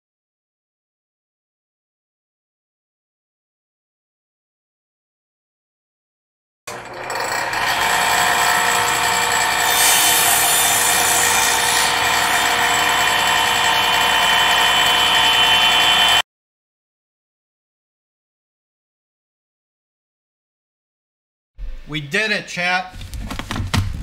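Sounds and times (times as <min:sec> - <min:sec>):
circular saw cutting cardboard: 0:06.7 - 0:16.2.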